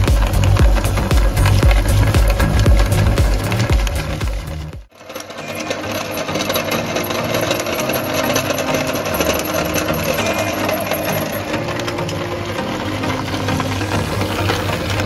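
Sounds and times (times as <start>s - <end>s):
meat grinder whirring rattle: 0.0s - 15.0s.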